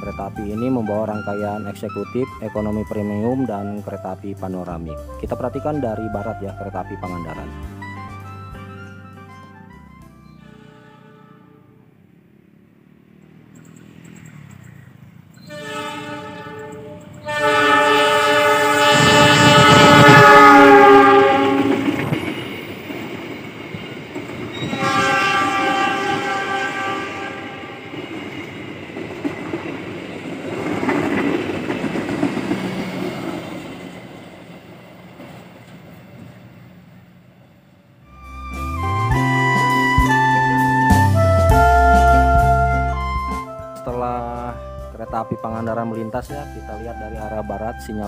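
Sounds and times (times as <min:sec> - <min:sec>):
train horn blasts: 0:08.9 - 0:12.0, 0:15.4 - 0:22.3, 0:24.5 - 0:28.1, 0:38.1 - 0:48.0
train rumbling and clacking on rails: 0:13.5 - 0:38.0.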